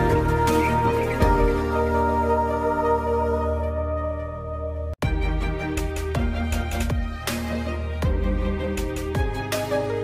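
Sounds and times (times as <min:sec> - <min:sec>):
electronic pop music: 0:00.0 - 0:10.0
deep sweeping kick drums: 0:05.0 - 0:09.5.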